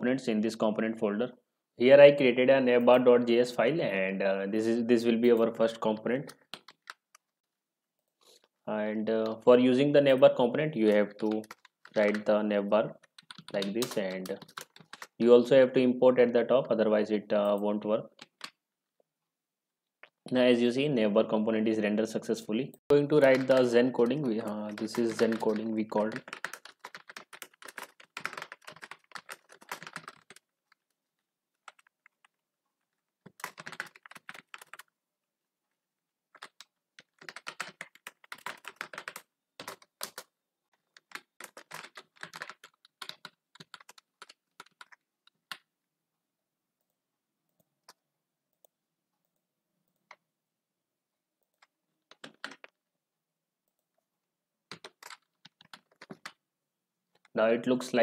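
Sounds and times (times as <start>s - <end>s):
typing on computer keyboard: 6.2s - 7.2s, 10.9s - 12.3s, 13.0s - 15.2s, 18.1s - 18.6s, 23.1s - 31.0s, 31.6s - 32.4s, 33.2s - 34.9s, 36.3s - 45.7s, 51.5s - 52.8s, 54.7s - 56.4s.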